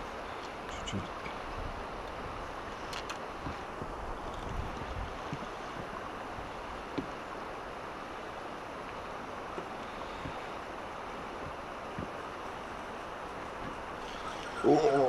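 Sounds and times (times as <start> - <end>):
fast river current rushing: 0.0 - 15.0.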